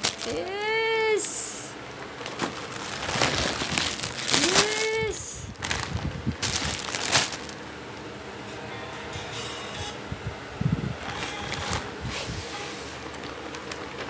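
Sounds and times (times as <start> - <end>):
plastic wrappers crinkling: 0.0 - 7.6, 11.1 - 11.9, 12.9 - 14.0
drawn-out voice cry: 4.4 - 5.5.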